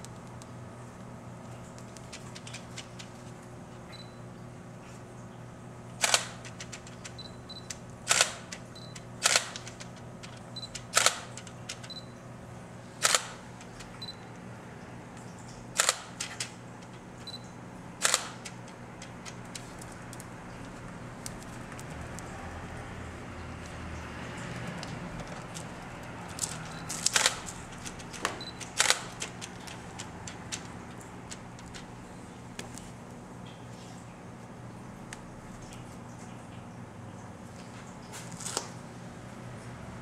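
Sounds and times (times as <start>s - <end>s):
camera shutter clicks: 6.0s - 6.4s, 8.1s - 8.5s, 9.2s - 9.7s, 10.9s - 11.3s, 13.0s - 13.4s, 15.8s - 16.1s, 18.0s - 18.4s, 26.9s - 27.5s, 28.8s - 29.3s.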